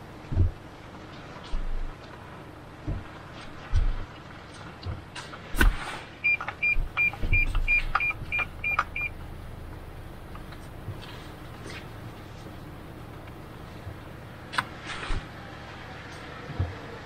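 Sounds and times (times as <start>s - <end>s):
car cabin rumble: 0.0s - 4.1s, 4.8s - 14.5s
parking sensor beeping: 6.2s - 9.7s.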